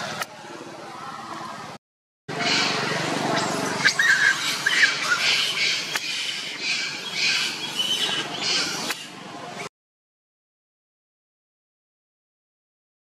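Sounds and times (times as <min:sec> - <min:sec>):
monkey screaming: 0:02.3 - 0:09.2.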